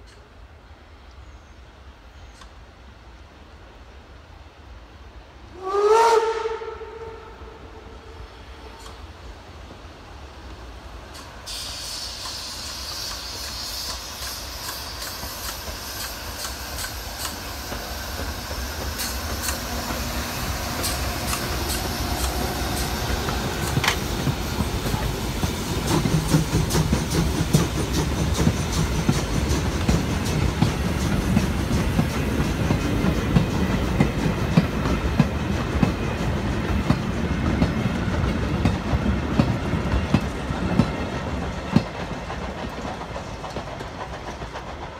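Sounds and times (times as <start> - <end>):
heavy train rumble: 0.0 - 44.9
steam locomotive passing: 0.0 - 44.9
wagon wheels clickety-clack: 25.8 - 44.9.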